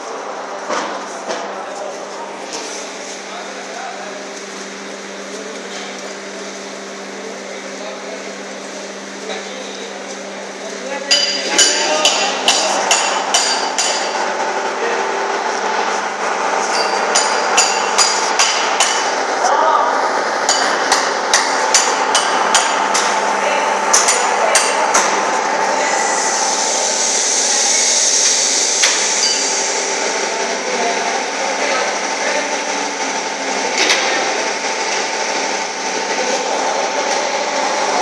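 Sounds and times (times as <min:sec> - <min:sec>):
machinery hum: 0:00.0 - 0:38.0
hammer blows with metallic ring: 0:16.6 - 0:19.1.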